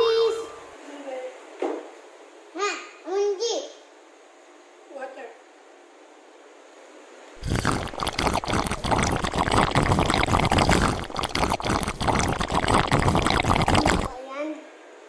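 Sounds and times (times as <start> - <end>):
water pouring and splashing: 7.4 - 14.2.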